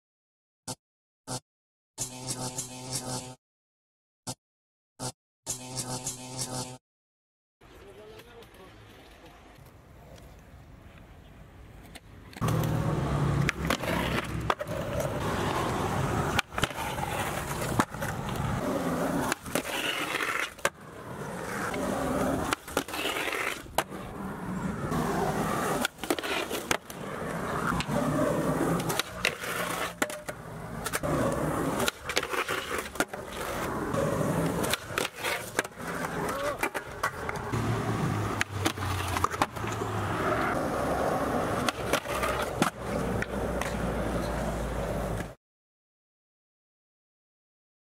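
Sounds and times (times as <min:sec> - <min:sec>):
skateboard wheels rolling on concrete: 0:07.6 - 0:45.4
skateboard grinding on concrete ledge: 0:12.4 - 0:45.2.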